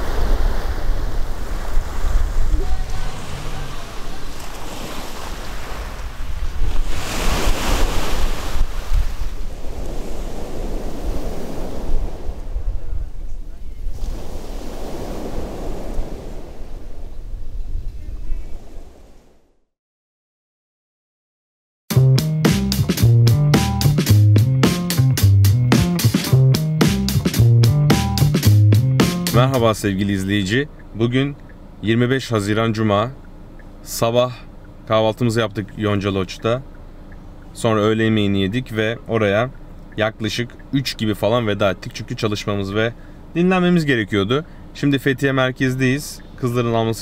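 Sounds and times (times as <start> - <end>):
sea waves washing in: 0.0 - 13.2, 13.8 - 17.5, 18.5 - 19.6
wind rumbling on microphone: 0.0 - 19.6
steady drum beat: 21.9 - 29.6
bass line: 21.9 - 31.4.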